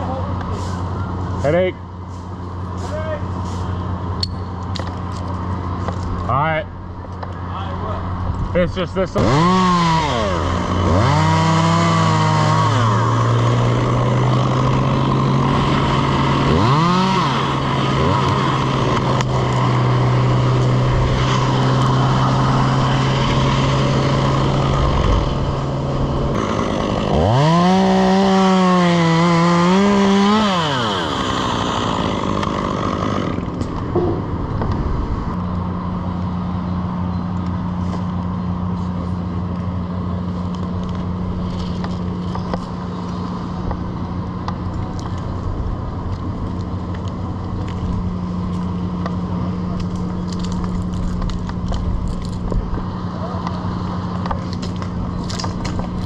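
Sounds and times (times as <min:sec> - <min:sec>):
engine drone: 0:00.0 - 0:56.0
chainsaw revving: 0:09.1 - 0:34.4.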